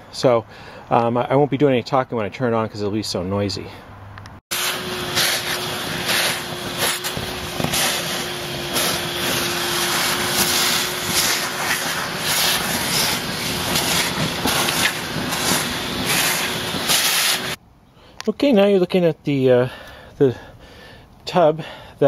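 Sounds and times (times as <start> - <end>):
nozzle sucking up water and sludge: 4.5 - 17.6
shop vac motor whine: 4.5 - 17.6.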